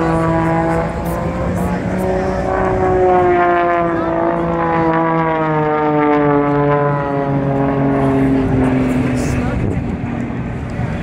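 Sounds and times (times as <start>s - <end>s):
propeller plane engine drone: 0.0s - 11.0s.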